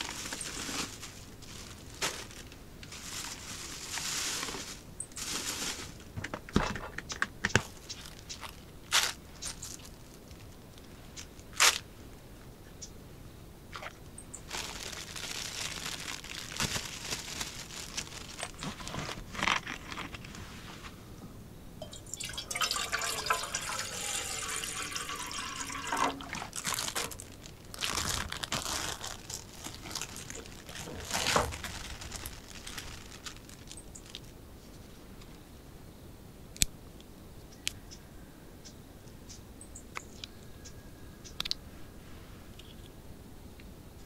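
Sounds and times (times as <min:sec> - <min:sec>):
plastic packaging crinkling: 0:00.0 - 0:10.5, 0:13.7 - 0:20.4, 0:22.1 - 0:34.3
water pouring into metal pot: 0:21.8 - 0:27.0.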